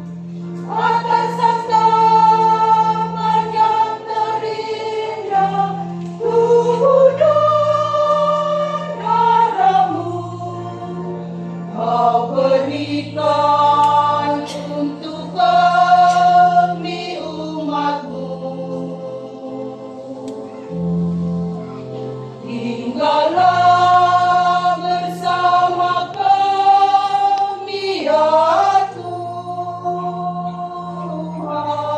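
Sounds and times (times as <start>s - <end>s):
choir singing a hymn: 0.0s - 31.9s
electronic keyboard low notes: 18.9s - 26.8s.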